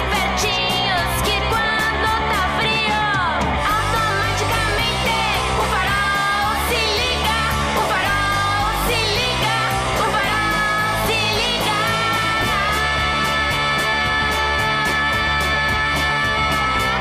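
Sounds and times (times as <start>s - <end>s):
bass line and beat: 0.0s - 17.0s
person singing pop melody: 0.0s - 17.0s.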